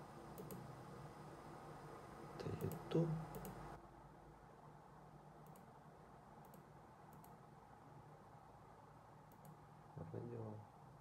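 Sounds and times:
low room hum: 0.0 - 11.0
computer mouse clicks: 0.3 - 0.7, 2.6 - 3.6, 5.4 - 5.7, 6.4 - 7.4, 9.3 - 9.6.

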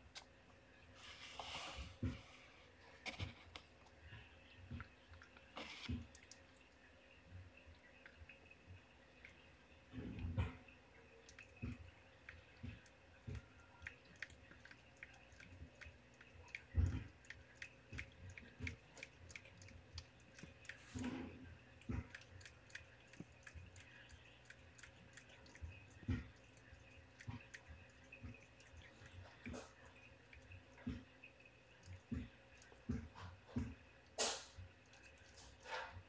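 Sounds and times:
cat licking wet clicks: 11.1 - 33.0.

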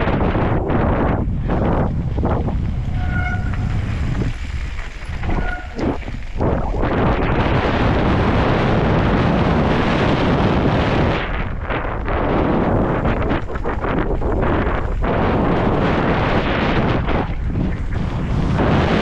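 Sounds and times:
bike tyres rolling on dirt: 0.0 - 19.0
wind buffeting microphone: 0.0 - 19.0
short high squeals: 5.2 - 6.2.

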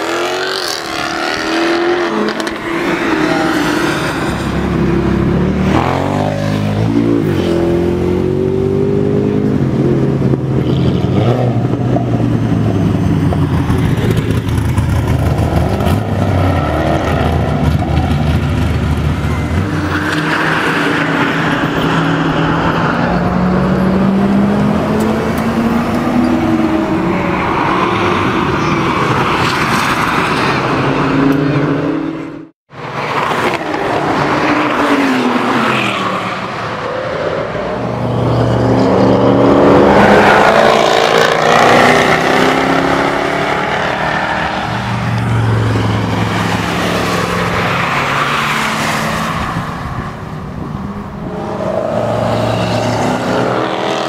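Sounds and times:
car engine revving: 37.4 - 54.0
sports cars accelerating past: 51.2 - 54.0.

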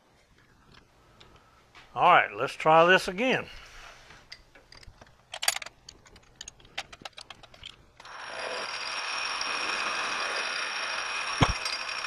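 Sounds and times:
metallic clicks and rattles: 4.3 - 8.1
lathe spindle whine: 8.0 - 12.0.

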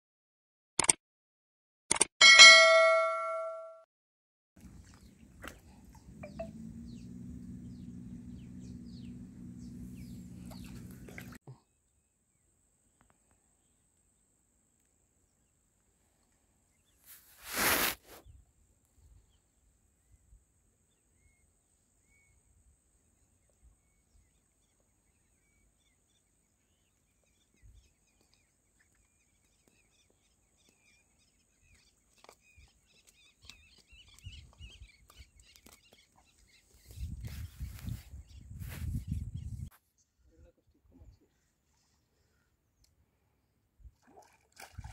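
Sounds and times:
bright bell ding: 2.2 - 3.8
short hiss: 17.1 - 18.2.

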